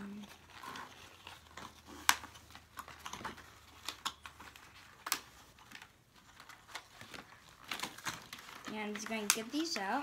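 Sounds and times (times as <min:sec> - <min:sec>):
packaging clicks and taps: 0:00.2 - 0:10.0.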